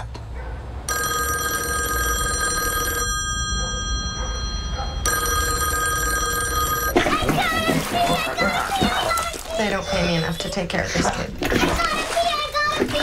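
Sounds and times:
shrill electronic ringing tone: 0.9s - 7.0s.

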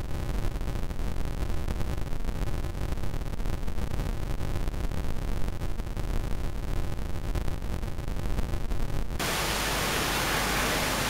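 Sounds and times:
low unsteady rumbling: 9.2s - 11.0s
steady hiss: 9.2s - 11.0s.

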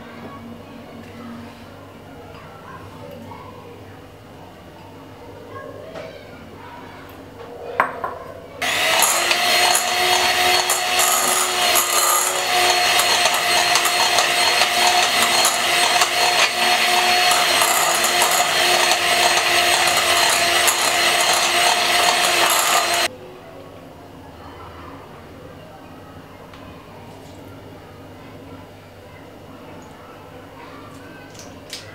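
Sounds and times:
electric hand mixer running: 8.6s - 23.1s.

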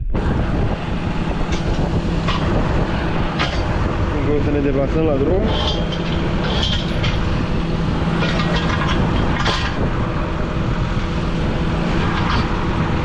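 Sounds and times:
steel chain clanking on bar: 5.5s - 7.6s.

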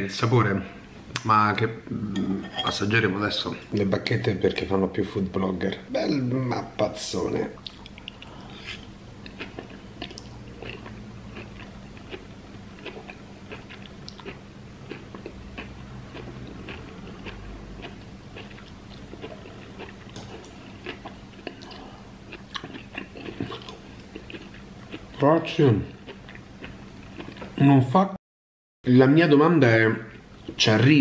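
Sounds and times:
person chewing crunchy food: 7.6s - 25.2s, 25.8s - 27.6s.

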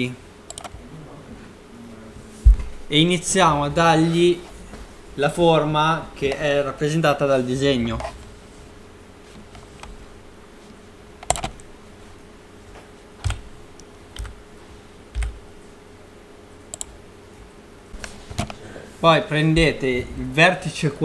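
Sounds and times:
faint steady hum: 0.0s - 21.0s
keyboard and mouse clicks: 0.5s - 0.8s, 11.2s - 11.7s, 13.2s - 13.4s, 14.2s - 14.4s, 15.1s - 15.4s, 16.7s - 17.0s.

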